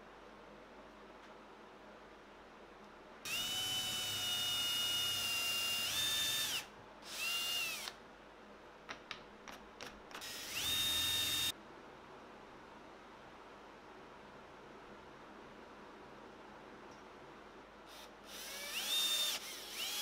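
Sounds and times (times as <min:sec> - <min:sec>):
cordless drill boring into wood: 0:03.3 - 0:07.9, 0:10.2 - 0:11.5, 0:17.9 - 0:20.0.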